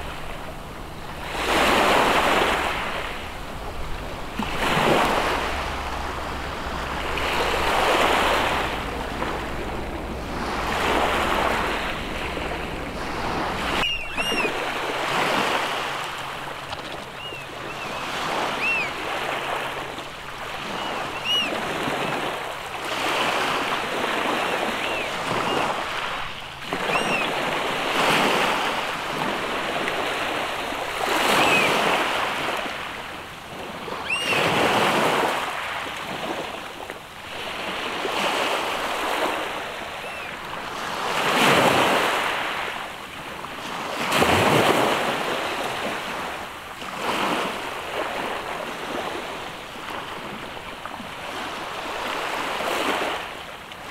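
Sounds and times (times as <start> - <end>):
sea surf on rocky shore: 0.0 - 53.9
short high bird calls: 13.7 - 14.6, 16.9 - 19.0, 20.6 - 21.7, 24.5 - 27.4, 31.3 - 31.9, 34.0 - 34.6, 40.0 - 40.4.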